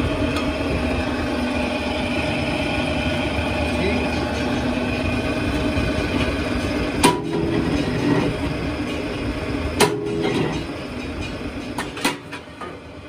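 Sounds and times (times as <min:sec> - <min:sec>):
factory machinery humming: 0:00.0 - 0:13.0
metallic clanks of wheel rims: 0:09.8 - 0:12.8.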